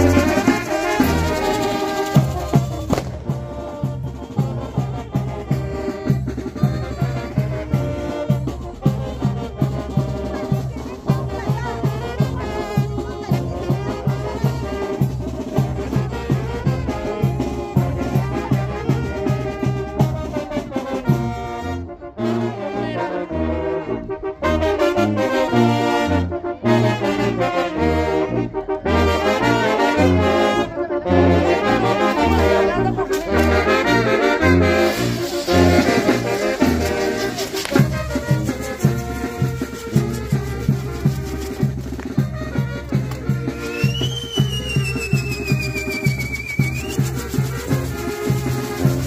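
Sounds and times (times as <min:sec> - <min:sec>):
brass band playing dance music: 0:00.0 - 0:49.0
fireworks spraying and hissing: 0:02.8 - 0:03.3, 0:34.7 - 0:42.2, 0:43.1 - 0:49.0.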